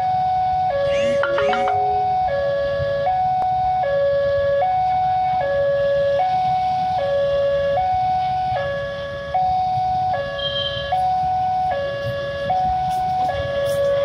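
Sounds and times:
level crossing two-tone alarm: 0:00.7 - 0:03.3.

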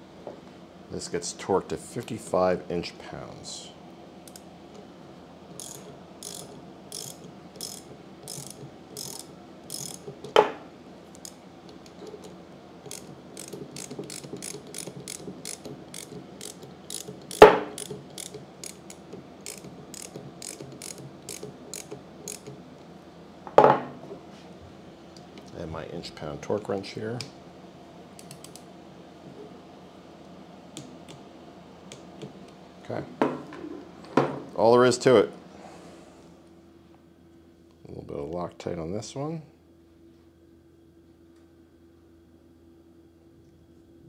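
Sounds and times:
socket ratchet clicking: 0:05.6 - 0:10.1, 0:12.9 - 0:22.6.

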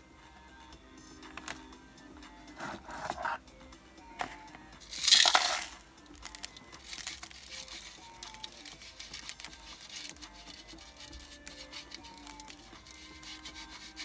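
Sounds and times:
gravel rasping on wire mesh: 0:04.9 - 0:14.0
gravel scraping over wire mesh: 0:04.9 - 0:14.0.

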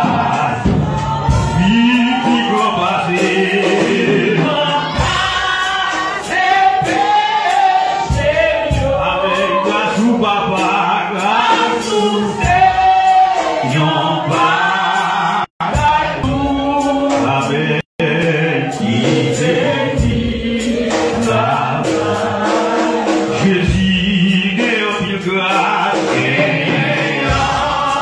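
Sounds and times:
choir singing: 0:00.0 - 0:28.0.

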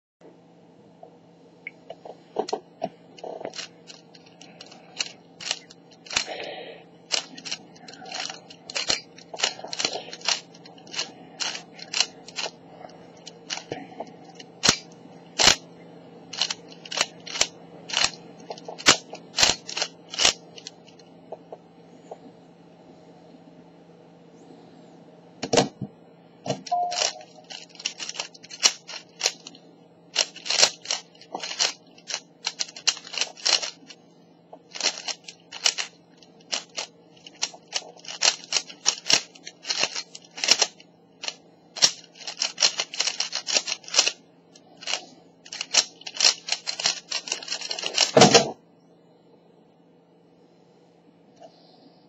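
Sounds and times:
speed cube clicking: 0:03.2 - 0:06.4, 0:07.1 - 0:12.6, 0:13.2 - 0:13.7, 0:14.4 - 0:15.6, 0:16.3 - 0:20.8, 0:26.8 - 0:29.5, 0:30.2 - 0:33.9, 0:34.7 - 0:44.2, 0:44.8 - 0:48.2.

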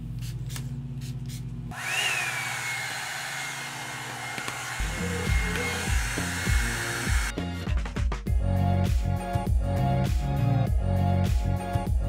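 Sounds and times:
hot-air brush blowing: 0:01.7 - 0:07.3
background music with heavy beat: 0:04.9 - 0:12.0.

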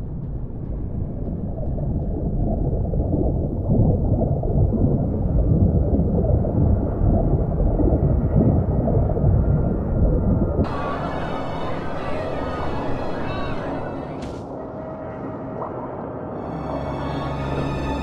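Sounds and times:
underwater churning water rumble: 0:00.0 - 0:14.1.

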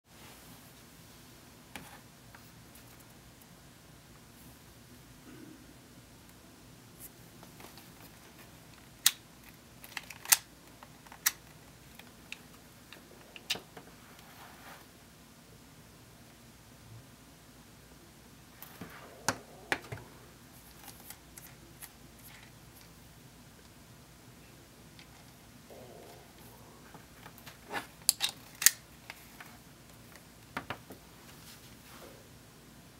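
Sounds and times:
soft handling noise: 0:07.0 - 0:15.0, 0:24.9 - 0:32.3.

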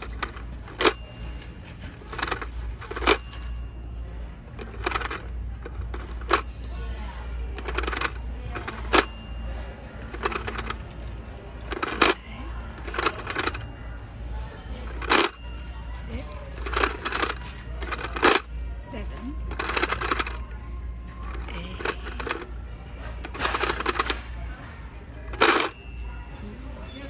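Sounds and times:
toy phone dial clicking: 0:00.0 - 0:06.7, 0:07.5 - 0:13.7, 0:14.8 - 0:15.9, 0:16.5 - 0:22.6, 0:23.2 - 0:24.4, 0:25.3 - 0:26.2
sharp metallic dings: 0:04.9 - 0:13.8, 0:25.4 - 0:27.0.

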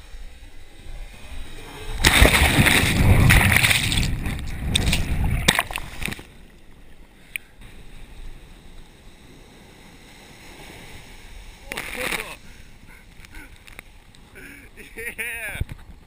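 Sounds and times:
breaking wave churning water: 0:00.9 - 0:06.3, 0:09.2 - 0:13.0
water washing: 0:01.9 - 0:06.3
small tick: 0:07.3 - 0:07.5, 0:13.1 - 0:14.2.

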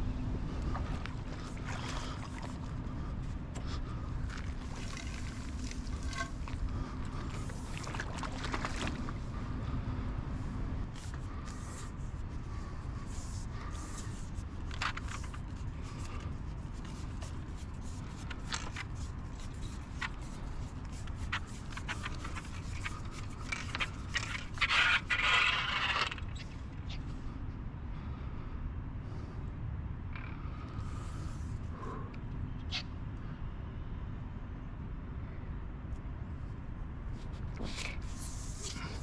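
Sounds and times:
fishing pole clicks and scrapes: 0:00.6 - 0:09.2, 0:10.9 - 0:27.1, 0:37.2 - 0:39.0
scraping rustle: 0:04.2 - 0:09.1.

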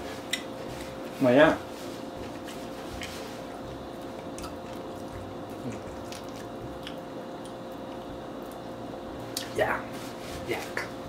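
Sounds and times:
soft wet chewing: 0:02.2 - 0:08.7.

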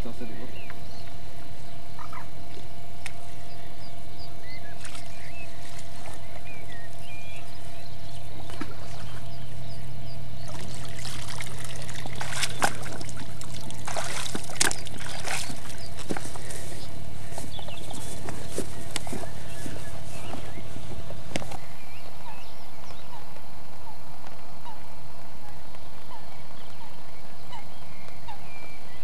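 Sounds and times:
water pouring out of a net: 0:10.5 - 0:15.6.

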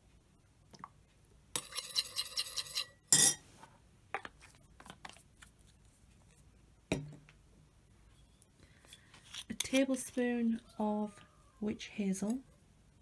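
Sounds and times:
metal spoon clinking against bowl: 0:01.6 - 0:03.4.

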